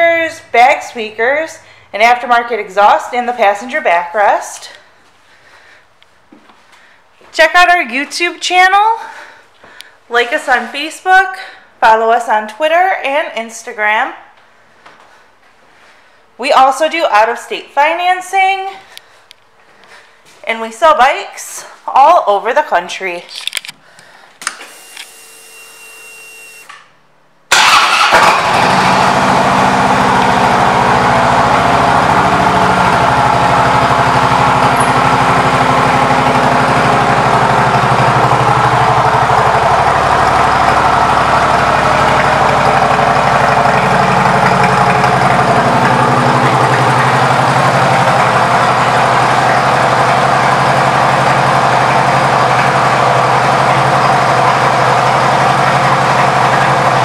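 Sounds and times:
motorcycle engine starting and idling: 27.5s - 57.0s.

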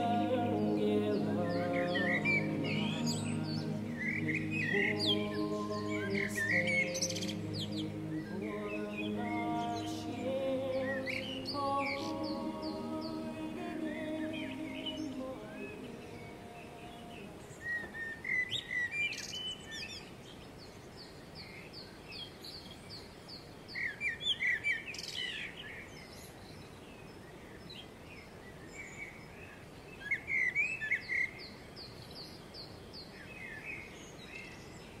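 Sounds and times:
river water rushing: 0.0s - 17.8s
songbird singing: 0.0s - 35.0s.

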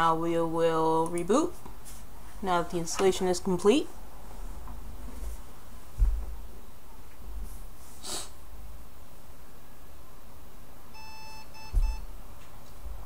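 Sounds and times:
computer beeps: 11.0s - 12.0s.

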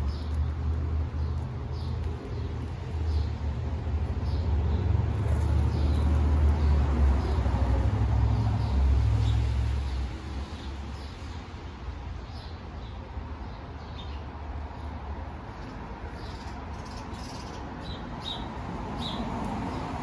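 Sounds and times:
vehicle engine rumble: 0.0s - 9.9s
small birds chirping: 0.0s - 20.0s.

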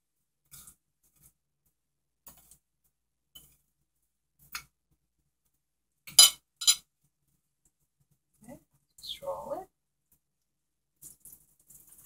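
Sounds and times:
metal spoon clinking on plate: 6.1s - 6.8s.

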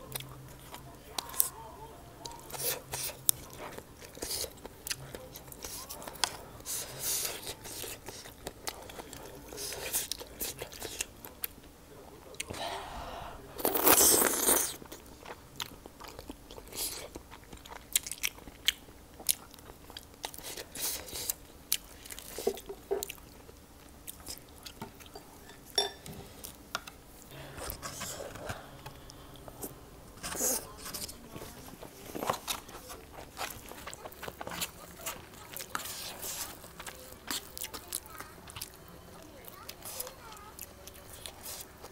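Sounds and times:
crunching bites and chewing: 13.6s - 25.1s.

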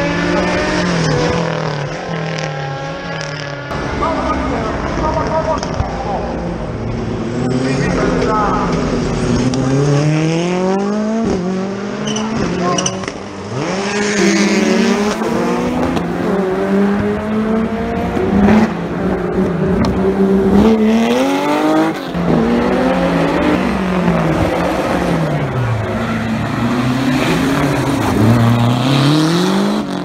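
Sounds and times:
rally car engines revving: 0.0s - 30.0s.

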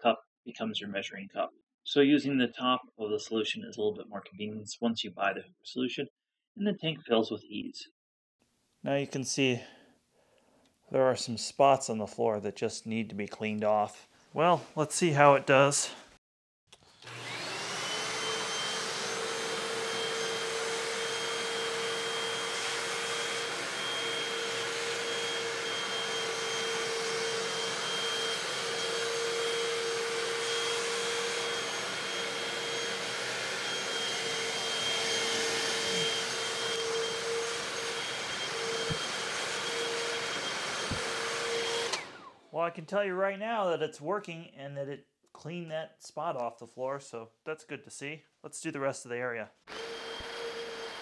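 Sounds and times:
floor cleaner motor whine: 16.8s - 42.3s, 49.7s - 51.0s.

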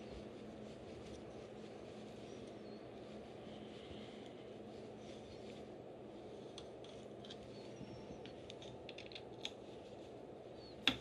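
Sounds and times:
faint room hum: 0.0s - 11.0s.

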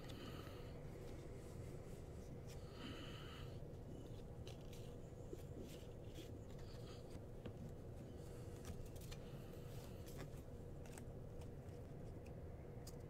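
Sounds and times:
steady low hum: 0.0s - 13.0s
trading cards clicking and scraping: 3.8s - 13.0s.

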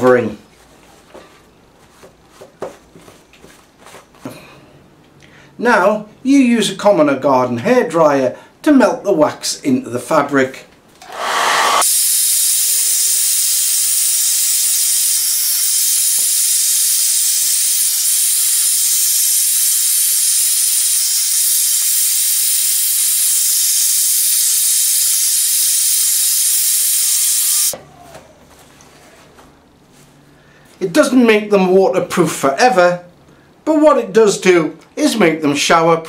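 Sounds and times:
hairdryer blowing: 11.0s - 18.7s, 25.9s - 27.8s.

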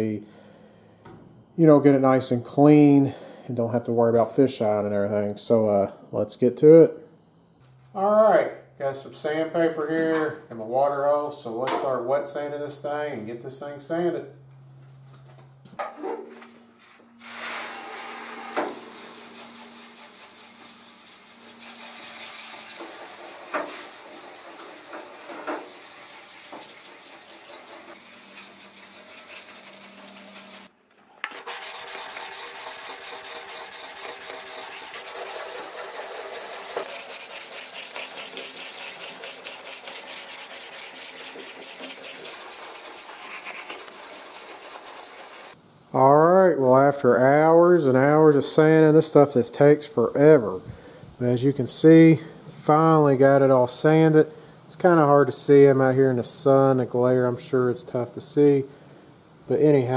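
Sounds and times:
sandpaper rasping on wet metal: 18.7s - 30.7s, 31.3s - 45.6s.

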